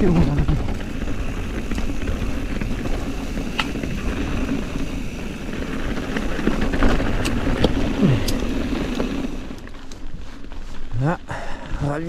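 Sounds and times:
bike tyres rumbling on dirt: 0.0 - 12.0
ticks and rattles of stones: 0.0 - 12.0.

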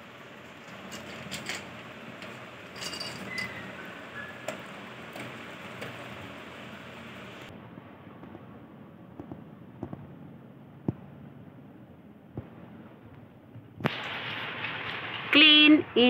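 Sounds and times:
kibble clinking on metal: 2.7 - 3.7.

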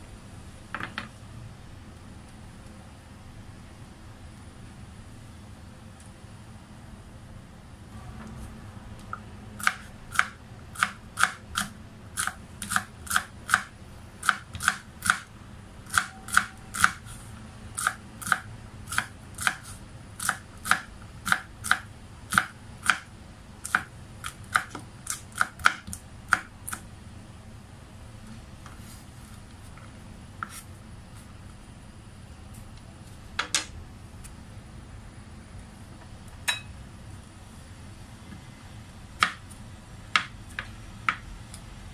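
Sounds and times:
knife chopping on wooden board: 40.2 - 41.2.

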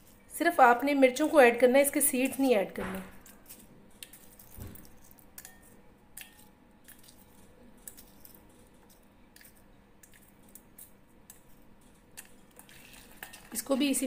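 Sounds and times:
spatula stirring thick sauce: 3.6 - 14.0.

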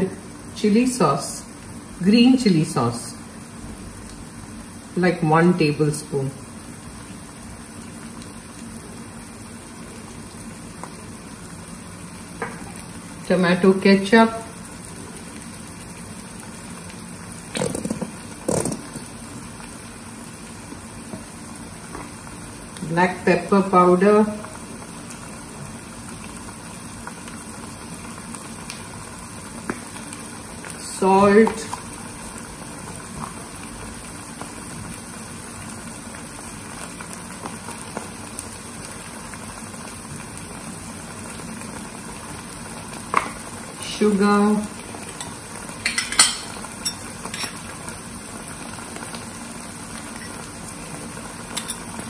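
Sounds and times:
vegetables sizzling in a wok: 0.0 - 52.0
ketchup sputtering into pan: 17.4 - 19.2.

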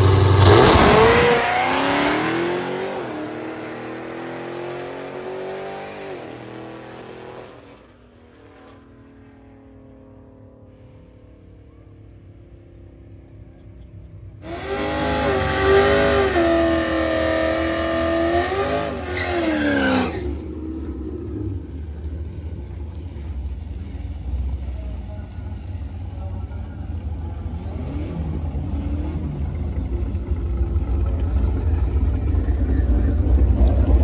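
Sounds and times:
car engine revving: 0.0 - 10.3, 12.4 - 34.0.

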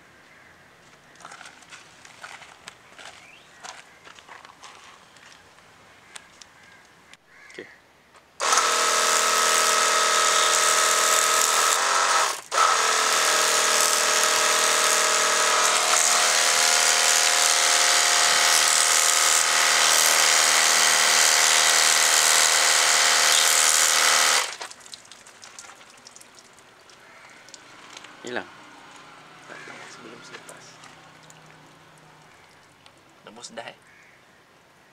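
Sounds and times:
pressure washer motor hum: 8.4 - 24.8.

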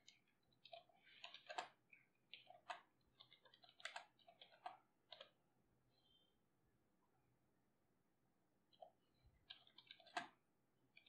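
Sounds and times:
typing on computer keyboard: 0.0 - 5.3, 9.4 - 10.4.

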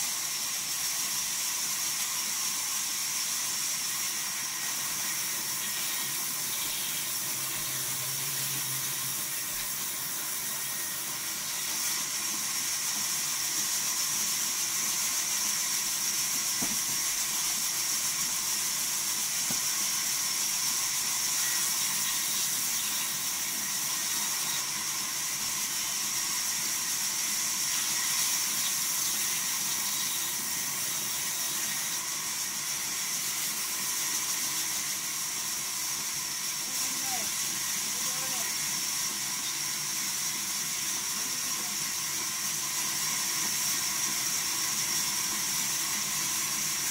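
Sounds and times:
faint steady whine: 0.0 - 33.0
band saw cutting timber: 3.4 - 35.7.

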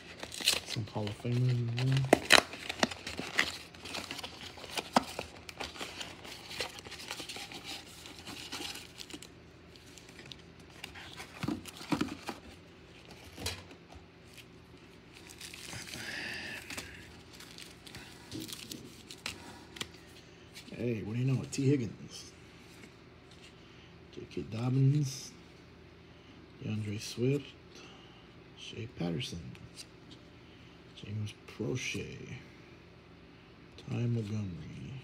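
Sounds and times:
card pack wrappers crinkling and tearing: 0.0 - 20.1.

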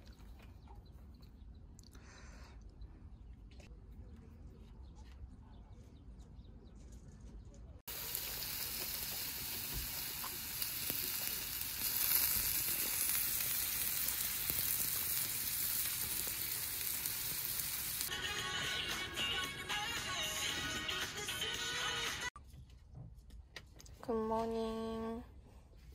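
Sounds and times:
meat and mushrooms sizzling: 7.9 - 18.1.

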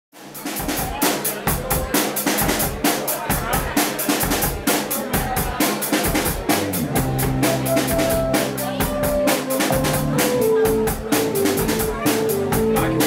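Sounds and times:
drum kit fast beat: 0.1 - 13.0
electric bass: 6.4 - 13.0
electric guitar: 6.7 - 13.0
keyboard held notes: 6.9 - 13.0.

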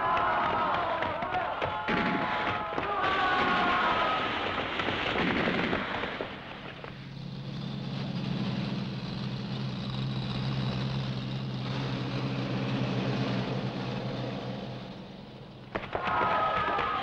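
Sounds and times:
truck engine running: 4.6 - 16.0.

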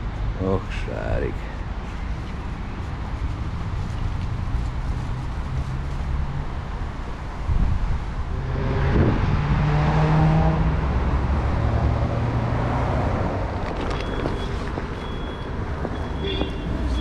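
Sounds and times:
car passing by: 7.5 - 17.0.

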